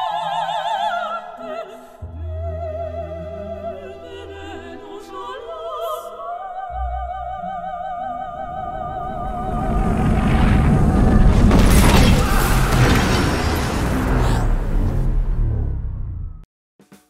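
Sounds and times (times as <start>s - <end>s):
explosion rumble and rushing blast: 8.4s - 16.4s.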